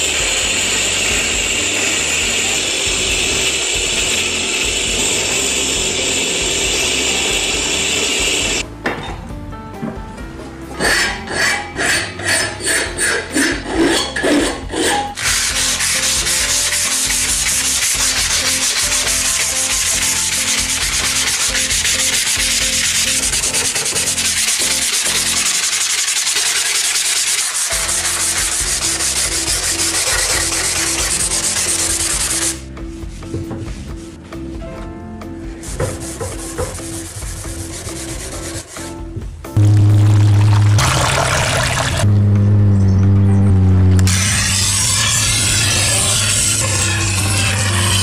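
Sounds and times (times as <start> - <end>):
hand file stroking steel: 10.8 - 32.6, 35.8 - 39.0, 44.1 - 48.0
hand sanding steel blade: 10.8 - 32.6, 35.6 - 39.0, 44.1 - 48.0.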